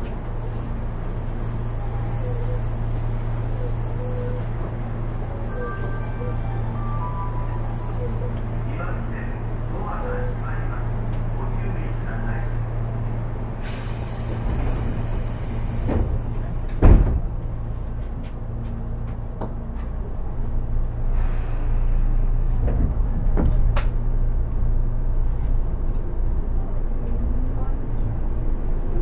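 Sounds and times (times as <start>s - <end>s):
air hissing: 13.6s - 16.4s
train doors shutting thud: 13.6s - 17.6s, 22.3s - 24.2s.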